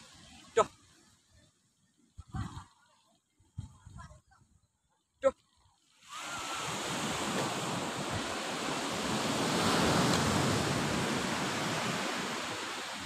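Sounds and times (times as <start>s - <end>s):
wave rushing onto beach: 6.0s - 13.0s.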